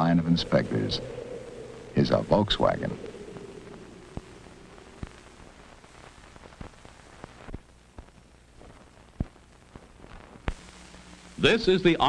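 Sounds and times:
faint low hum: 0:00.0 - 0:12.0
film soundtrack hiss: 0:00.0 - 0:12.0
clicks and pops: 0:03.7 - 0:10.6.

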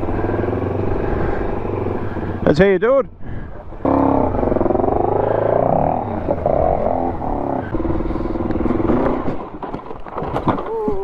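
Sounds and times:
dirt bike engine revving: 0:00.0 - 0:02.4, 0:03.8 - 0:09.4.

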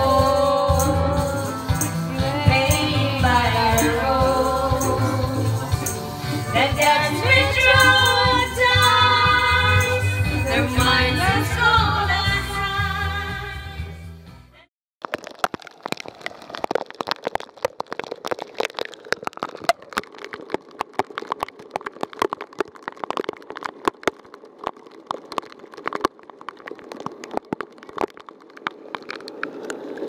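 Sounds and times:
rain tapping on hard surfaces: 0:15.0 - 0:30.0.

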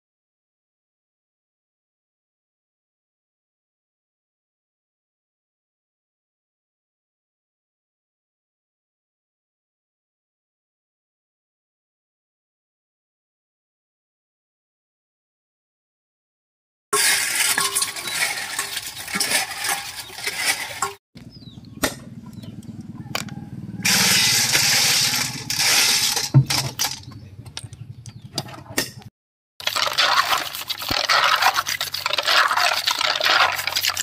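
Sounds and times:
stiff brush scrubbing: 0:17.0 - 0:21.0, 0:23.8 - 0:26.3, 0:29.6 - 0:34.0
water running and splashing: 0:17.0 - 0:21.0, 0:29.6 - 0:34.0.

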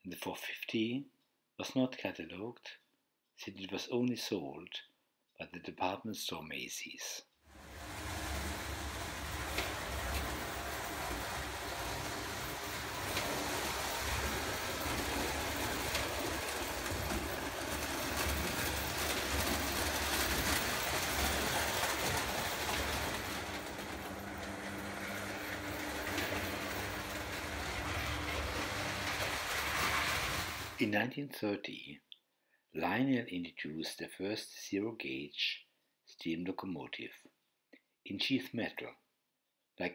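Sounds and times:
toy locomotive running: 0:07.5 - 0:30.8
wheels clicking on rails: 0:07.5 - 0:30.8.

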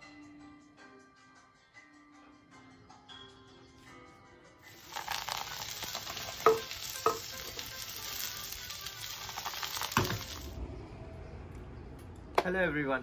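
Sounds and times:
meat sizzling on griddle: 0:04.7 - 0:10.6.

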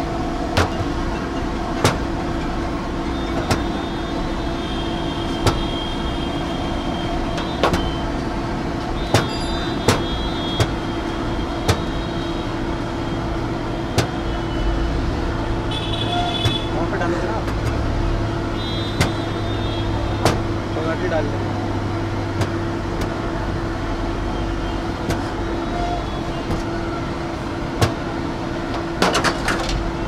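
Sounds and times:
constant hum: 0:00.0 - 0:30.0
street traffic: 0:00.0 - 0:30.0
sharp knocks: 0:00.6 - 0:01.0, 0:01.8 - 0:02.1, 0:09.1 - 0:10.8, 0:20.2 - 0:20.5.

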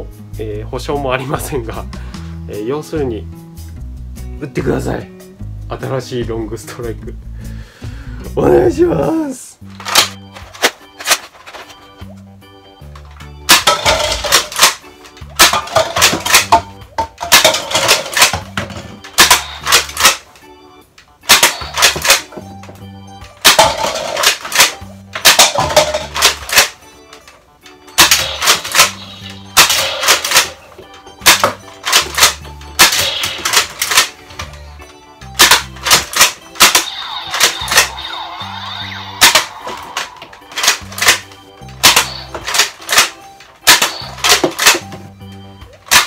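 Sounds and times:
background music: 0:00.0 - 0:46.0
toy blaster plastic clacks: 0:09.8 - 0:11.7, 0:13.5 - 0:16.6, 0:17.3 - 0:20.3, 0:21.3 - 0:22.4, 0:23.4 - 0:26.8, 0:28.0 - 0:30.6, 0:31.2 - 0:34.6, 0:35.4 - 0:38.0, 0:39.2 - 0:44.9.

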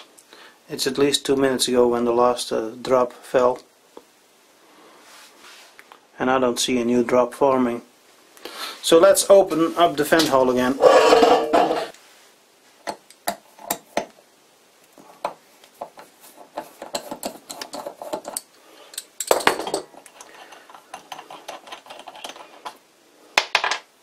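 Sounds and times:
metal rub: 0:10.7 - 0:11.9, 0:20.0 - 0:22.8.

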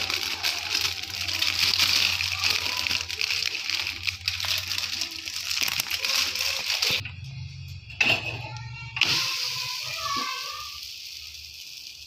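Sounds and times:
plastic sheet crinkling: 0:00.0 - 0:07.0.

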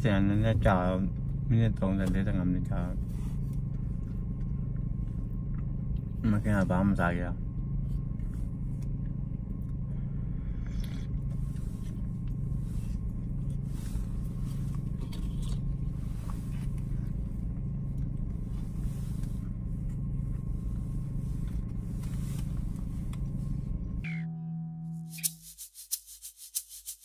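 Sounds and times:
low engine drone: 0:00.0 - 0:25.3
rustles and clicks in seat: 0:11.3 - 0:23.8.

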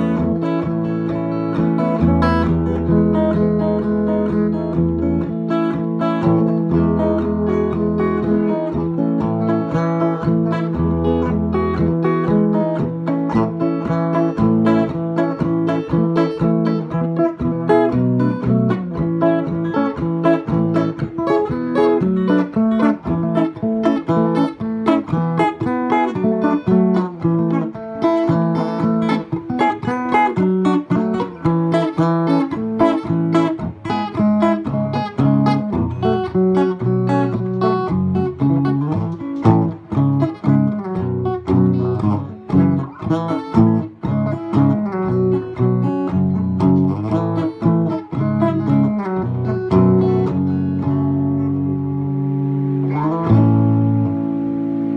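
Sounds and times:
electric guitar jam: 0:00.0 - 0:54.9.

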